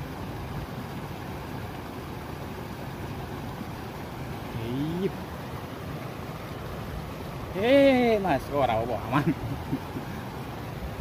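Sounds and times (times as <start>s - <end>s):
river current rushing: 0.0s - 11.0s.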